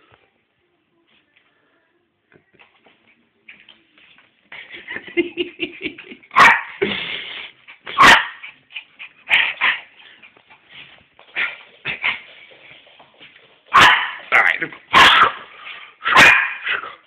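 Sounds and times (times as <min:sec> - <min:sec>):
dog barking: 0:06.4 - 0:06.8, 0:08.0 - 0:08.4, 0:13.7 - 0:14.3, 0:14.9 - 0:15.4, 0:16.1 - 0:16.8.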